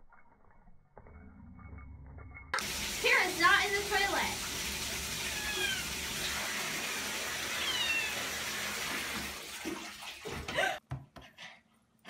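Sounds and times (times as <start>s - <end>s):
water rushing in toilet bowl: 2.6s - 10.8s
cat splashing in water: 3.8s - 10.5s
cat meowing: 5.2s - 5.9s, 7.5s - 8.3s.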